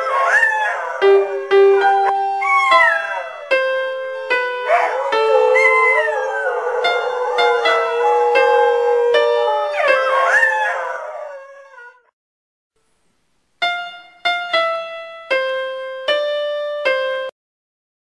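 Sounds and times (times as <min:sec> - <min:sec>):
piano notes: 0:00.0 - 0:11.7, 0:13.6 - 0:17.3
dog howling: 0:00.0 - 0:12.1.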